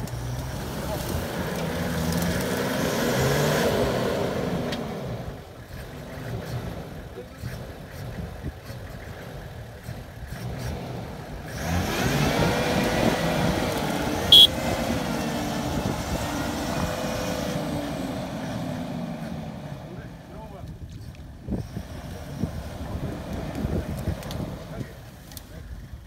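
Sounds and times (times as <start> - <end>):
engine revving hard: 0.0 - 20.3.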